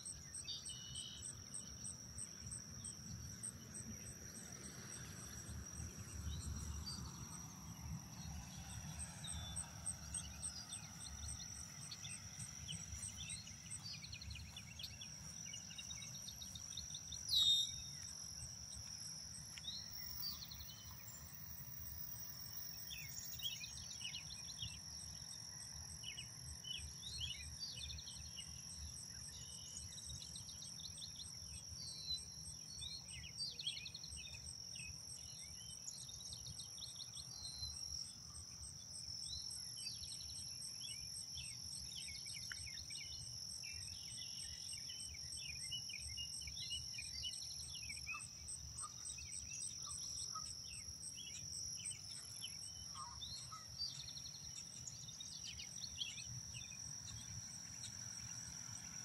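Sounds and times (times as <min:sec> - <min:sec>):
high-pitched insect drone: 0:00.0 - 0:59.0
pulsing insect trill: 0:00.0 - 0:59.0.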